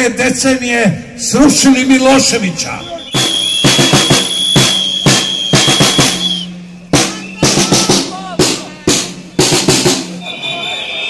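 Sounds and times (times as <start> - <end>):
long whistle blast: 2.7 - 7.6, 10.1 - 11.0
drums in march beat: 3.1 - 10.9.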